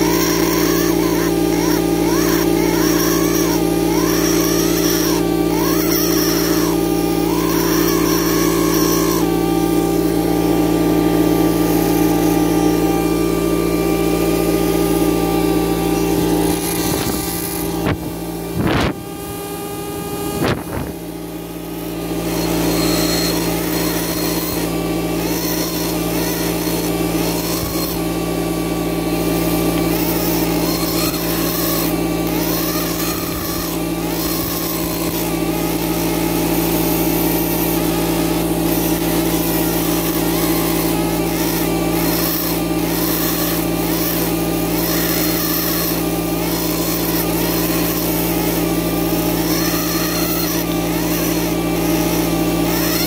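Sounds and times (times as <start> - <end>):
air scribe buzzing: 0.0 - 53.0.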